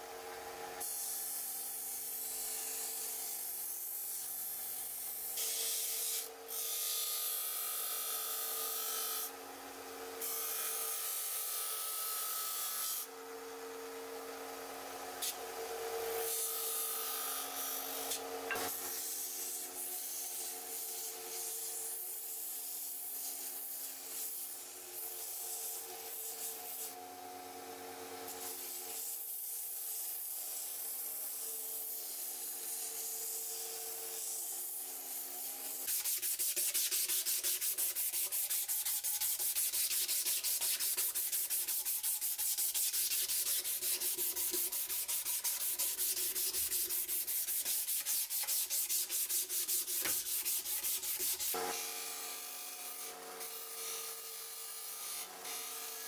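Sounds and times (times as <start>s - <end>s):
rhythmic hand sanding: 18.0s - 27.0s, 28.6s - 56.0s
wood rasping on abrasive: 35.8s - 54.0s.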